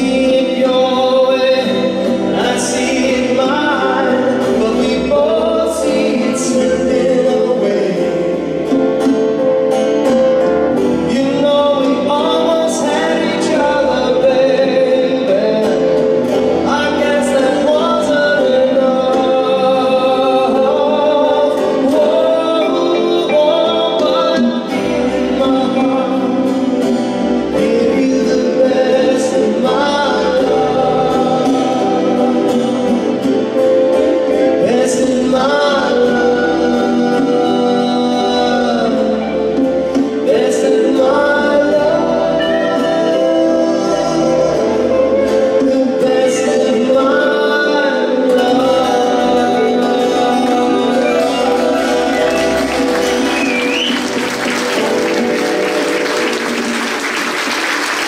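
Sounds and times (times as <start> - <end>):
acoustic guitar: 0.0 - 58.0
band playing: 0.0 - 58.0
man singing: 0.0 - 58.0.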